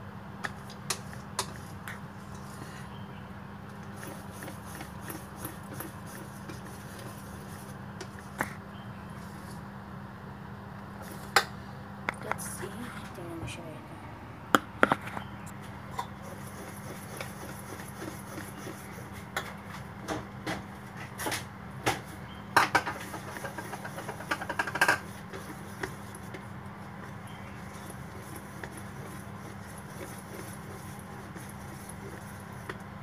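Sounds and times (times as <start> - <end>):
steady low hum: 0.0 - 33.0
whisk tapping metal bowl: 4.0 - 8.2, 22.6 - 26.4, 27.0 - 32.8.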